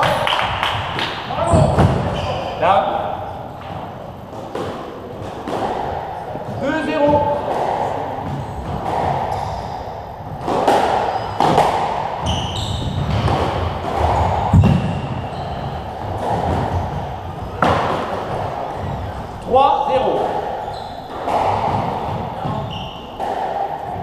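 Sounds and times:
squash ball hits echoing: 0.0 - 24.0
shoe squeaks on wooden floor: 1.5 - 2.7, 9.3 - 10.0, 11.0 - 11.6, 12.2 - 13.4, 14.1 - 15.9, 20.6 - 21.2, 22.4 - 23.2.

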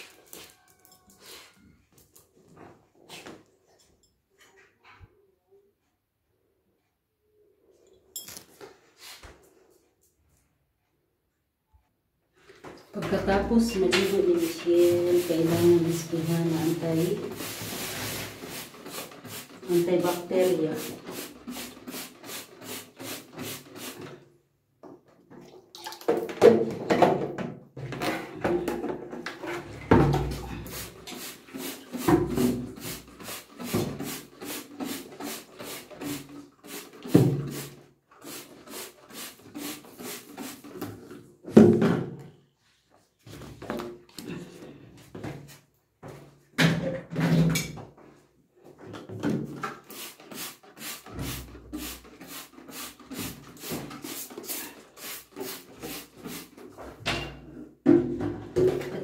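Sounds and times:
spray bottle squirts: 17.2 - 24.1, 30.7 - 40.8, 49.8 - 56.6.

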